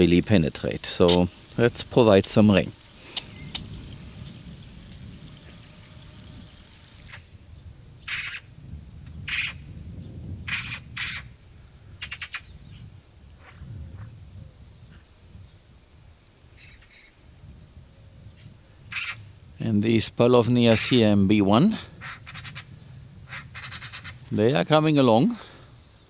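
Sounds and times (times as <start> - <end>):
high hiss: 0.0 - 7.5
crickets chirping: 0.0 - 26.0.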